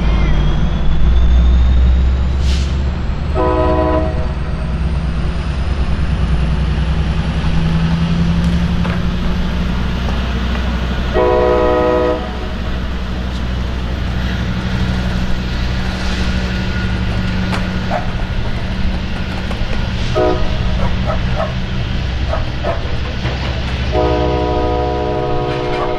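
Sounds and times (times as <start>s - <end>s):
diesel locomotive running: 0.0s - 25.9s
train horn blasts: 3.3s - 4.4s, 11.1s - 12.6s, 20.0s - 21.2s, 23.9s - 25.9s.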